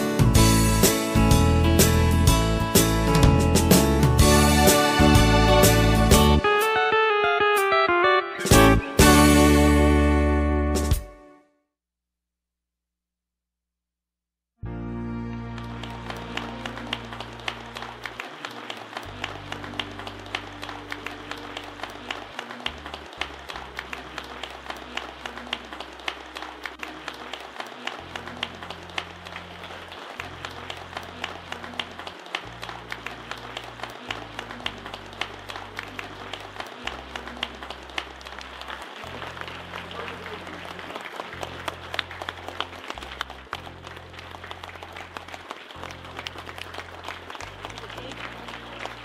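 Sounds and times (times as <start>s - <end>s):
people clapping: 0.0s - 6.7s, 15.3s - 49.0s
background music with bass: 0.0s - 11.3s
background music with low notes: 0.0s - 11.5s, 14.6s - 49.0s.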